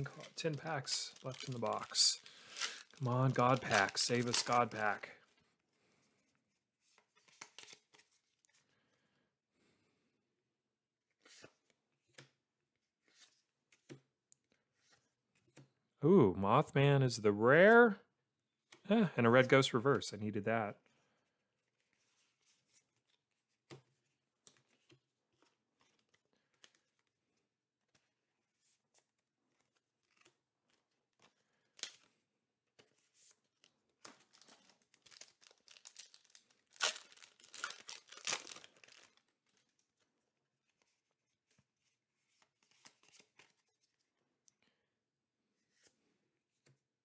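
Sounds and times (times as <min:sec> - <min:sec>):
trading cards clicking and rustling: 0:00.0 - 0:05.0
foil wrapper crinkling and tearing: 0:00.0 - 0:05.1, 0:34.2 - 0:39.7.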